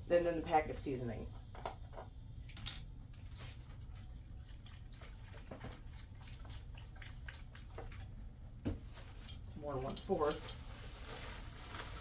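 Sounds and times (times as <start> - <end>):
faint liquid drips: 2.4 - 10.8.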